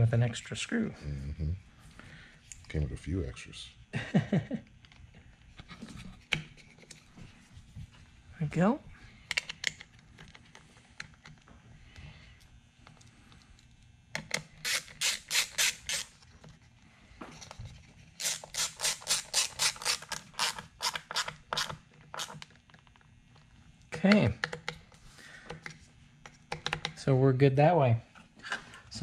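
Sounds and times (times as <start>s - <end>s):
ratcheting screwdriver clicking: 14.2s - 16.1s.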